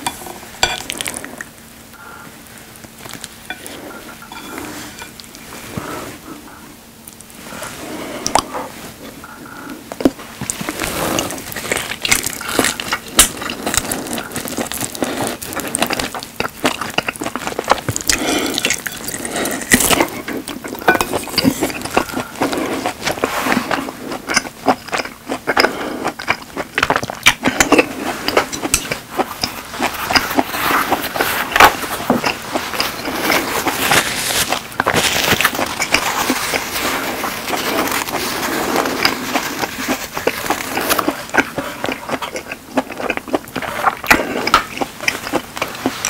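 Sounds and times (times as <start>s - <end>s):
chewing steak mouth sounds: 9.3s - 46.0s.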